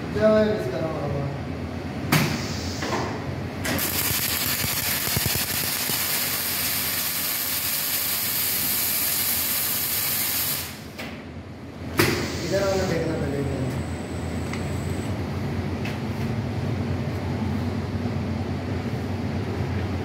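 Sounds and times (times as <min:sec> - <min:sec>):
sharp machine clack: 0:03.7 - 0:07.6
welding arc hissing: 0:03.7 - 0:10.8.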